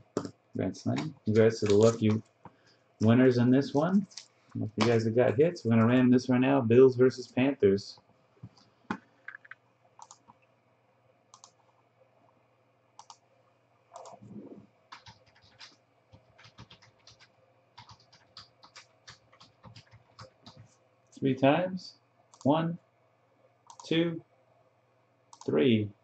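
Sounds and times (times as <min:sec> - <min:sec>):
typing on computer keyboard: 0:09.3 - 0:10.3, 0:14.9 - 0:20.7, 0:23.7 - 0:23.9.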